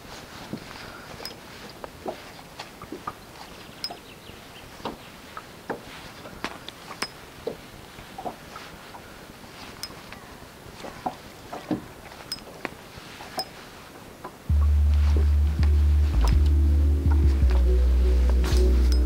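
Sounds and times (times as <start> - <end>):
steady background hiss: 0.0 - 19.0.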